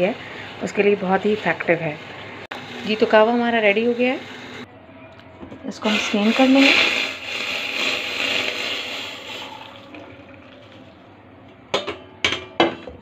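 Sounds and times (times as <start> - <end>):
tea poured through a strainer: 5.9 - 10.9.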